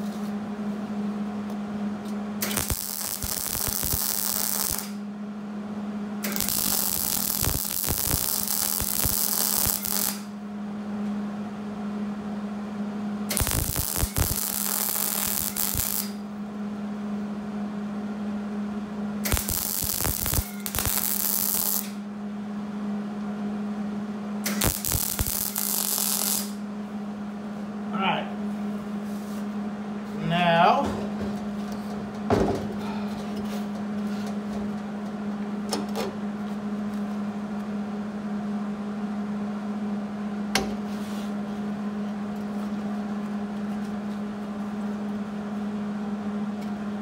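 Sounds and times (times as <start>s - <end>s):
steady hum: 0.0s - 47.0s
welder arc crackling and hissing: 2.4s - 5.0s, 6.2s - 10.4s, 13.3s - 16.3s, 19.2s - 22.0s, 24.4s - 26.7s.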